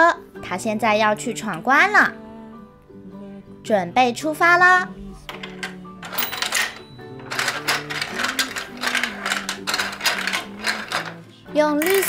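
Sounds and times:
background music: 0.0 - 12.0
plastic toy clicking and rattling: 5.3 - 12.0.

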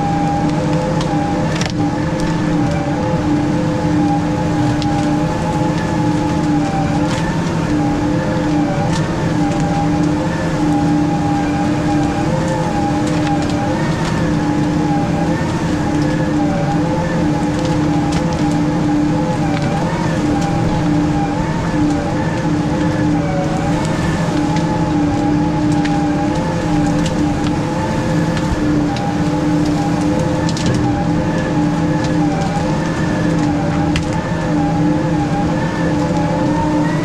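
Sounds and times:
diesel engine droning: 0.0 - 37.0.

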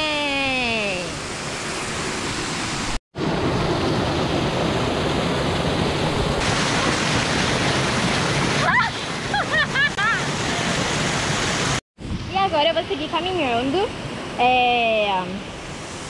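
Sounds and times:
waterfall pouring over rocks: 6.4 - 9.3, 10.1 - 11.8.

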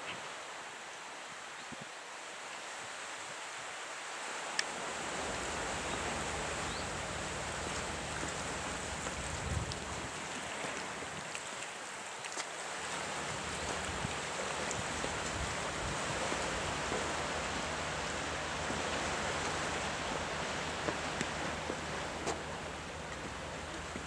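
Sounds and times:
surf washing among rocks: 2.8 - 24.0.

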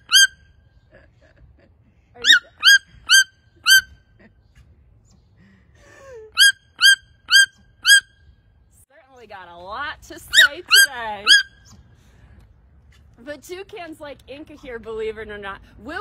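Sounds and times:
toucan yelping calls: 0.0 - 0.6, 2.2 - 4.0, 6.4 - 8.3, 10.3 - 11.8.

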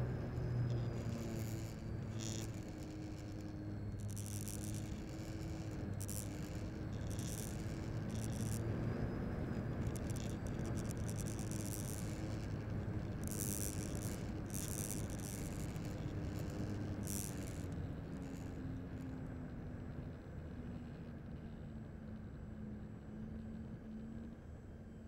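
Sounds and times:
model airplane motor drone: 0.0 - 25.0
high-pitched airframe rattling: 0.7 - 8.6, 9.8 - 18.6.

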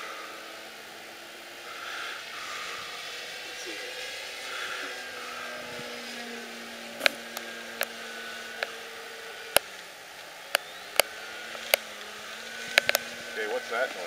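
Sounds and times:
electric motor and propeller droning: 0.0 - 14.0
sharp clicks: 7.0 - 8.0, 9.5 - 13.2.

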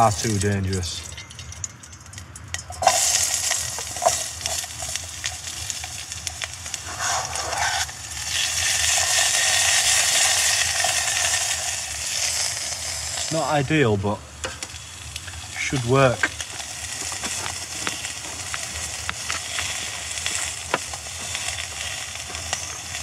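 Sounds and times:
peppers sizzling in a pot: 0.0 - 23.0
clicks and scrapes: 6.8 - 7.9.

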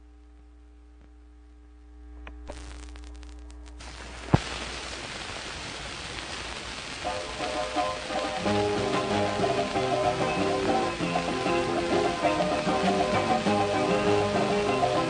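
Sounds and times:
faint low hum: 0.0 - 4.3
record hiss: 0.0 - 15.0
record surface crackle: 0.0 - 15.0
charango and guitar notes: 7.1 - 15.0.

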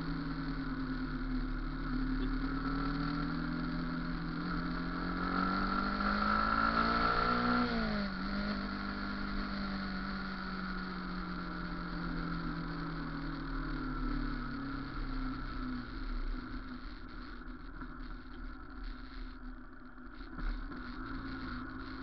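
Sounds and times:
background rumble: 0.0 - 6.0, 6.6 - 22.0
vehicle engine running: 0.0 - 22.0.

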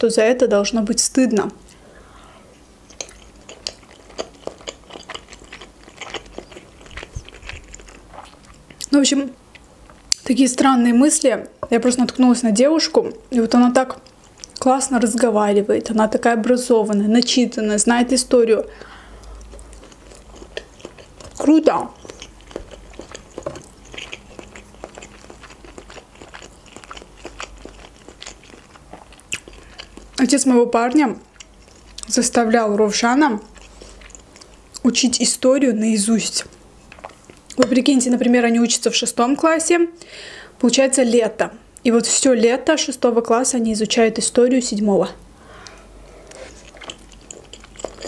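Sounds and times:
chewing mouth clicks: 2.9 - 8.9, 18.8 - 30.2, 45.6 - 48.0.

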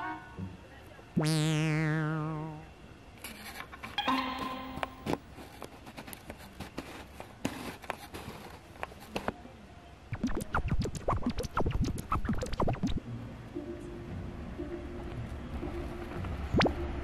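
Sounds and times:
scratching and rustling: 5.3 - 9.4.

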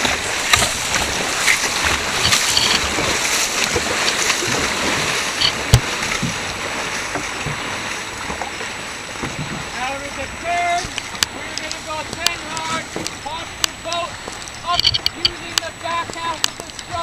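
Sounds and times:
paddles splashing water: 0.0 - 17.0.

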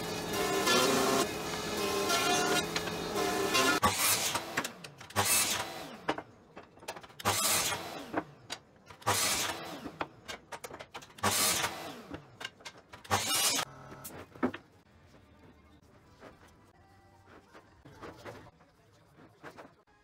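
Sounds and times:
mitre saw cutting wood: 0.0 - 6.1, 7.2 - 8.2, 9.0 - 10.0, 11.2 - 12.2, 13.1 - 13.7.

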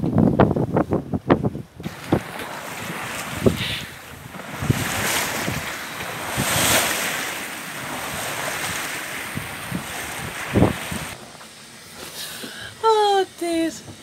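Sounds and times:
wind buffeting microphone: 0.0 - 11.2
wind and sea rushing: 0.0 - 12.9
water wash: 1.8 - 14.0.

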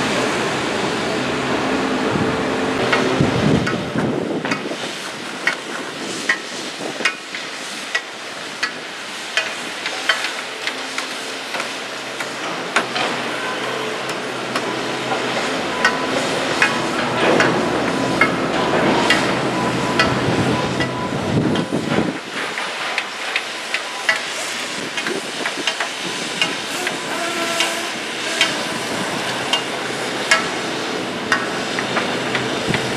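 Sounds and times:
construction machinery: 0.0 - 32.9
hammer blows: 26.7 - 29.7.

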